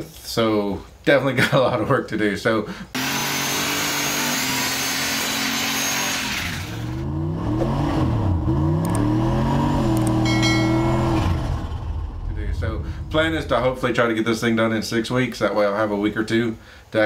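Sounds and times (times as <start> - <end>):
drag car engine revving: 3.0 - 14.2
short electronic chime: 10.2 - 12.0.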